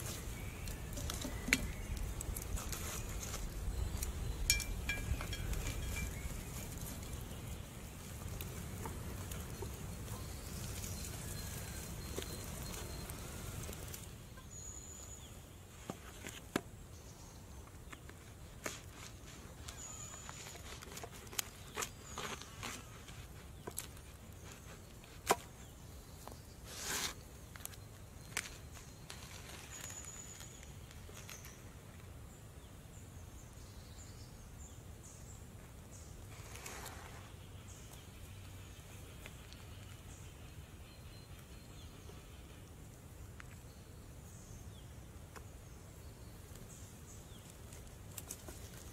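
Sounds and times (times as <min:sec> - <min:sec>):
light crackles: 0:00.0 - 0:14.4, 0:17.6 - 0:32.2, 0:45.2 - 0:48.9
quiet outdoor ambience: 0:00.0 - 0:48.9
faint high bird call: 0:19.6 - 0:20.8.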